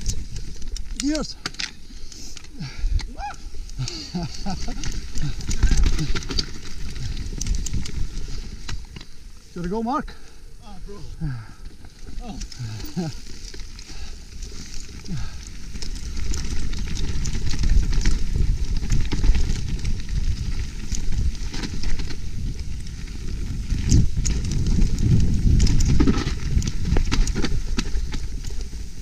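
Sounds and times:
bike tyres rumbling on dirt: 0.0 - 29.0
chain and frame rattling: 3.6 - 9.1, 11.8 - 28.9.

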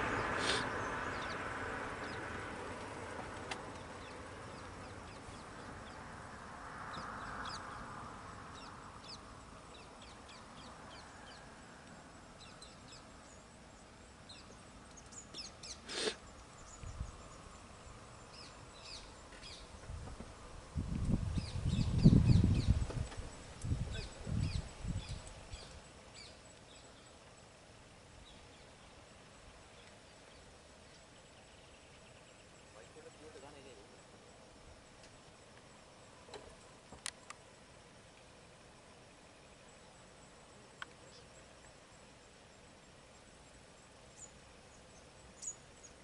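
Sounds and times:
vehicle passing: 0.0 - 11.8
forest birds chirping: 0.0 - 46.0.

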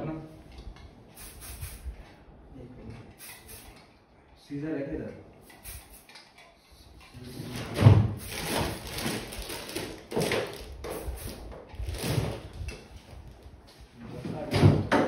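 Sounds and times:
rustling and clatter of objects: 6.0 - 15.0.

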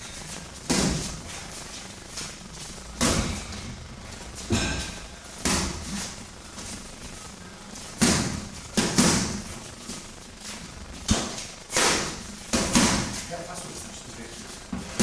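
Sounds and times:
boxing gloves smacking mitts: 8.0 - 9.6.

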